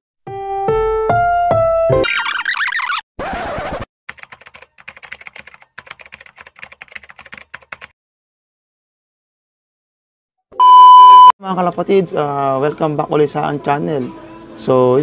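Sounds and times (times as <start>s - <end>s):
rapid typing clicks: 4.1s - 7.9s
loud steady beep: 10.6s - 11.3s.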